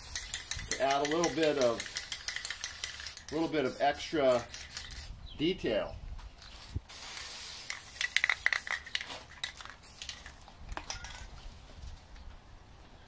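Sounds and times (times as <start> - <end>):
sharp metallic clicks and rattles: 0.0 - 3.6, 7.7 - 11.3
spray paint can hissing: 0.0 - 5.2, 6.9 - 10.5.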